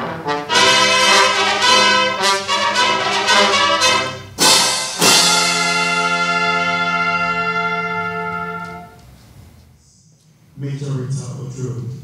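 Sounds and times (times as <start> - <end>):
fanfare trumpets: 0.0 - 9.0.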